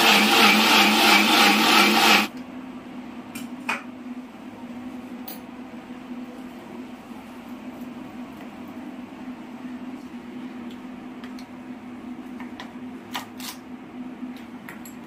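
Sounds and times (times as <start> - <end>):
blender motor running: 0.0 - 2.3.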